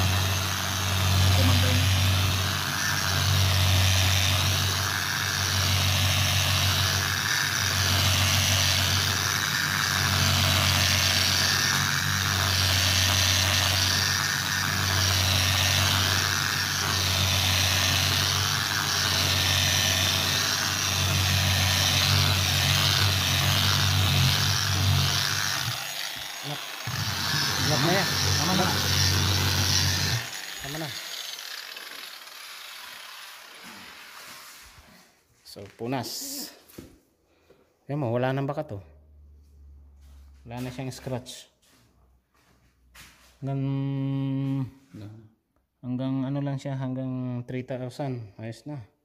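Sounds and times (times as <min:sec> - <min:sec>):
electric polisher on wet stone: 0:00.0 - 0:34.7.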